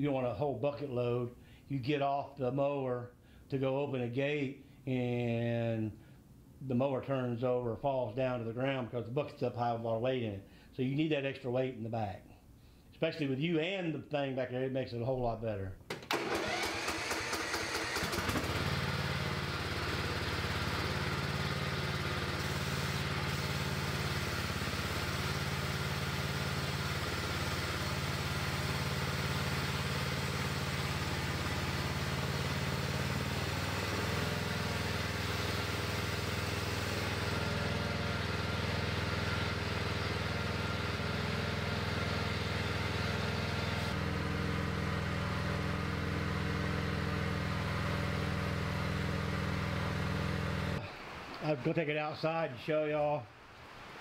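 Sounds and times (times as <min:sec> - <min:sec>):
riding lawn mower engine running: 0:15.9 - 0:50.8
loader hydraulics working: 0:16.1 - 0:32.7.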